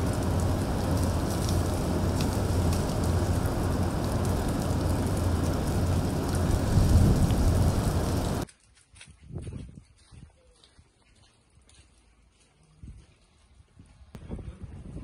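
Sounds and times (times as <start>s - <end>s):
wind buffeting microphone: 0.0s - 8.5s, 13.8s - 15.0s.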